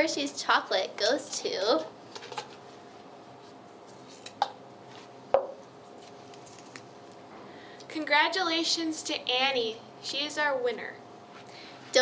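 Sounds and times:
canister knocking on table: 0:05.4 - 0:05.6.

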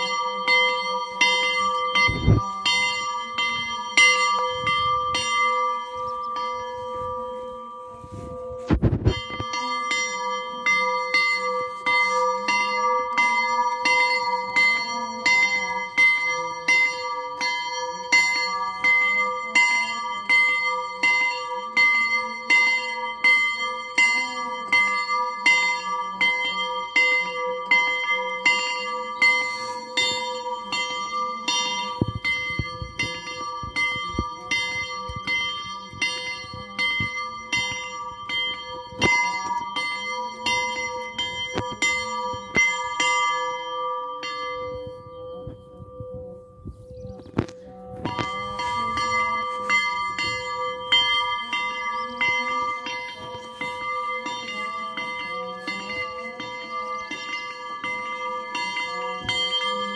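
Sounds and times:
church bells pealing: 0:00.0 - 0:59.9.

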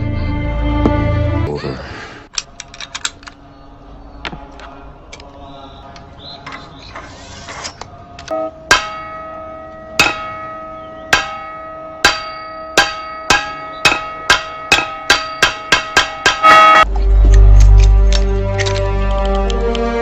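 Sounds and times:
temple bell struck: 0:08.3 - 0:16.9.

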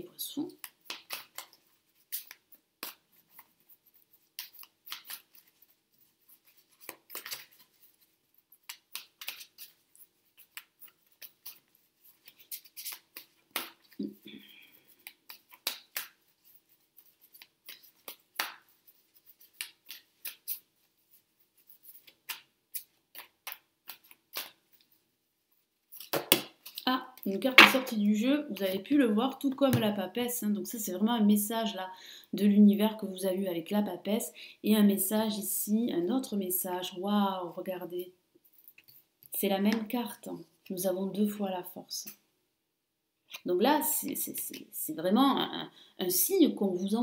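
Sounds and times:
cards being shuffled: 0:00.5 - 0:25.0, 0:25.9 - 0:28.0.

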